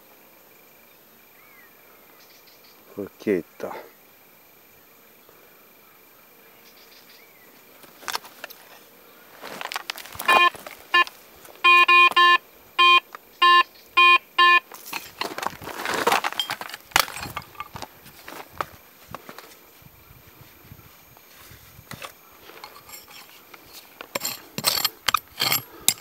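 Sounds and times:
digging tool scraping stony soil: 9.4 - 10.9, 14.7 - 19.6, 21.3 - 26.0
metal detector beeps: 10.2 - 15.3.

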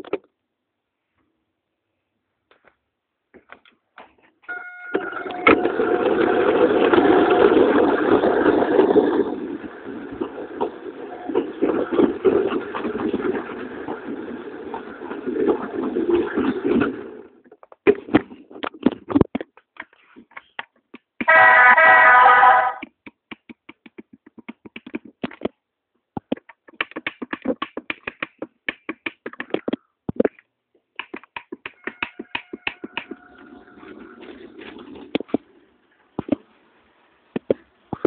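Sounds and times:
toy train horn: 4.5 - 5.6, 21.3 - 22.8.

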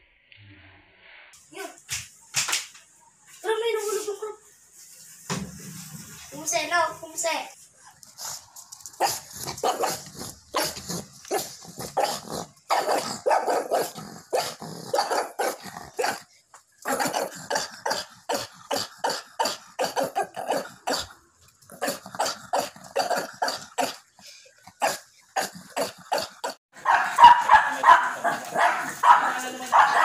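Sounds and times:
small dog barking: 9.0 - 16.2, 16.9 - 18.1, 26.8 - 30.0.

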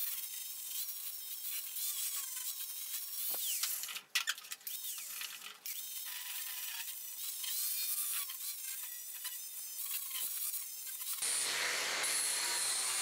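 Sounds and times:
angle grinder sanding wood: 5.8 - 13.0.

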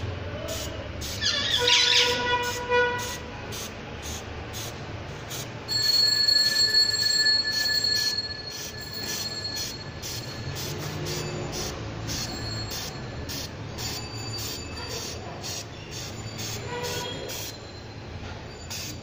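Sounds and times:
aerosol spray hissing: 0.5 - 1.3, 2.4 - 5.5, 9.6 - 16.6, 18.7 - 19.0
short squeal: 15.7 - 19.0.

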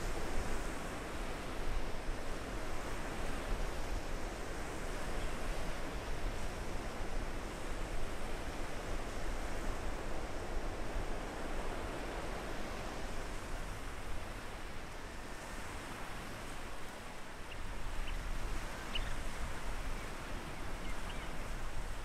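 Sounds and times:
surf washing on sandy beach: 0.0 - 22.0
wind: 0.0 - 22.0
small bird chirping: 18.9 - 19.2.

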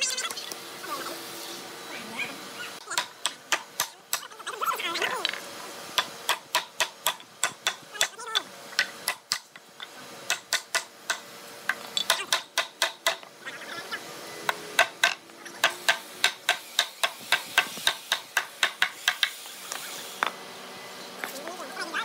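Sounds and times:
hammer striking chisel: 6.0 - 8.1, 10.3 - 13.3, 14.5 - 19.8.

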